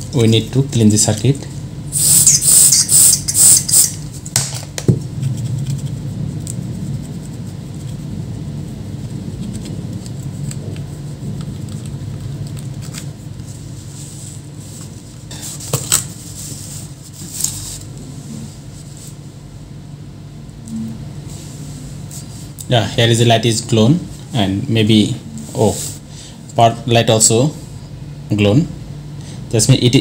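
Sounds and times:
steady low hum: 0.0s - 30.0s
aerosol spray hissing: 1.9s - 4.0s.

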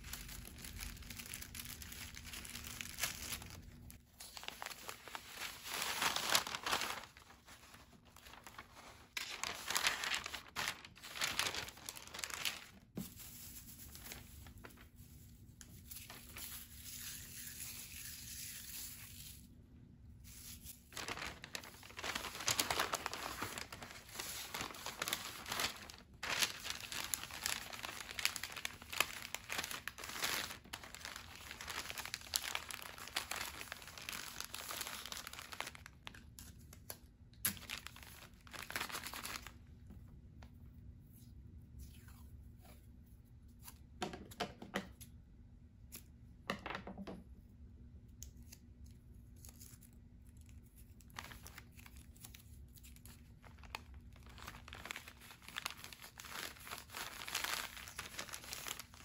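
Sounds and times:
paper bags crinkling: 0.0s - 12.9s, 20.9s - 36.2s, 37.5s - 39.6s, 51.1s - 52.4s, 53.0s - 59.0s.

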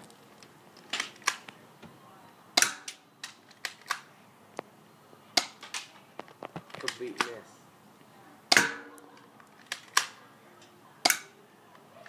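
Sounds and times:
airsoft pistol shots: 2.6s - 3.0s, 8.5s - 9.0s.

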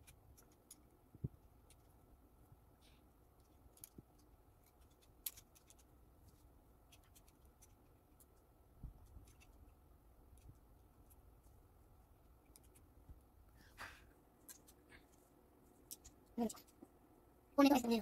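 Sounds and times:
plastic bricks clicking together: 4.6s - 5.8s.

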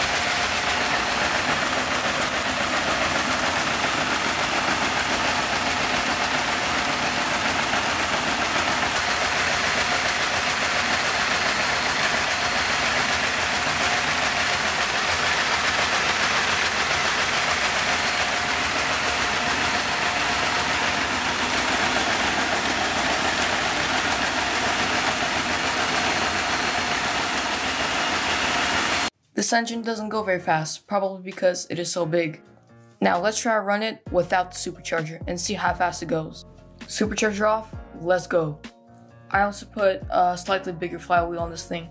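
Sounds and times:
vacuum cleaner running: 0.0s - 29.1s.

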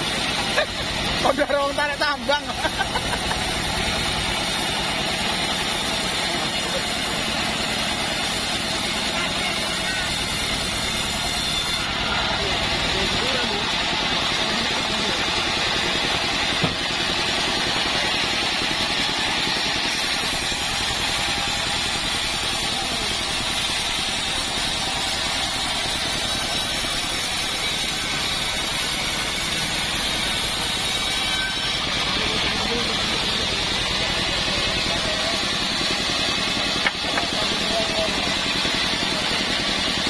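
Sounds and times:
band sawmill sawing log: 0.0s - 40.0s.

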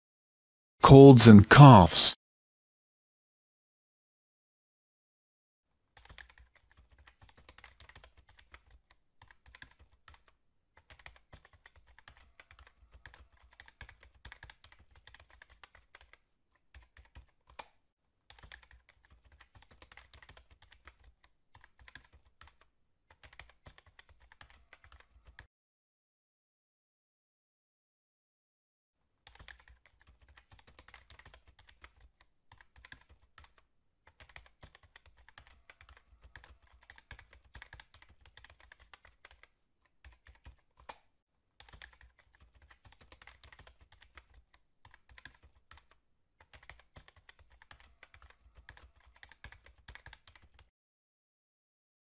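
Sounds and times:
fast typing on computer keyboard: 5.9s - 17.7s, 18.3s - 25.4s, 29.2s - 41.0s, 41.6s - 50.7s.

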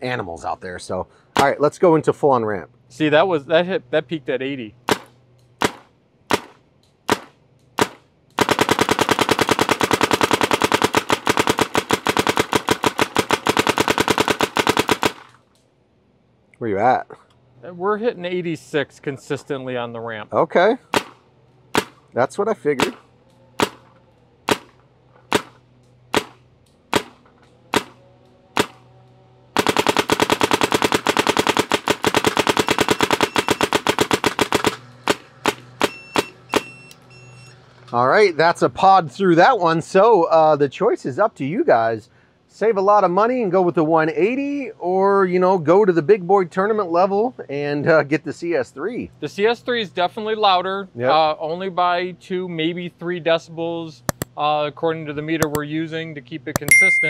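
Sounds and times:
paintball marker firing: 4.8s - 15.4s, 20.9s - 22.0s, 22.8s - 23.0s, 23.6s - 28.8s, 29.6s - 36.7s, 54.1s - 54.3s.

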